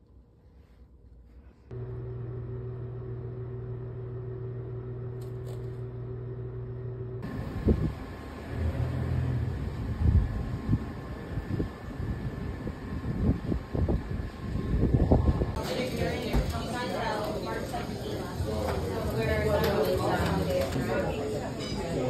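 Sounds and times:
low mechanical hum: 0:00.0 - 0:15.6
outdoor rumble: 0:01.7 - 0:15.6.

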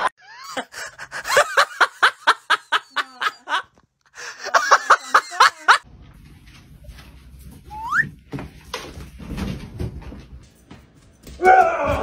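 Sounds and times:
person laughing hard: 0:00.0 - 0:05.8.

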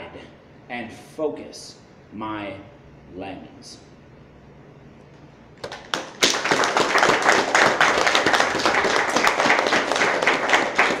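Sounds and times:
audience applauding: 0:05.6 - 0:11.0.

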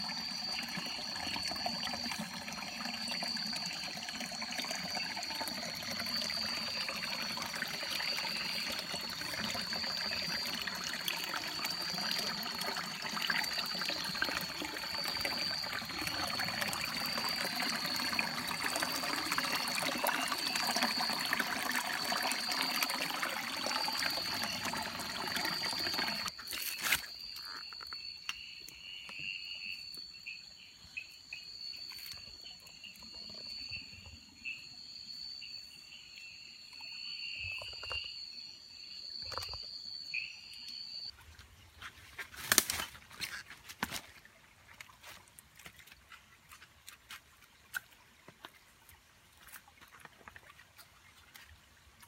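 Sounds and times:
stream water trickling over rocks: 0:00.0 - 0:29.2, 0:31.4 - 0:34.6, 0:39.1 - 0:52.0
night insects trilling: 0:00.0 - 0:41.1
pulsing insect call: 0:00.0 - 0:41.1.

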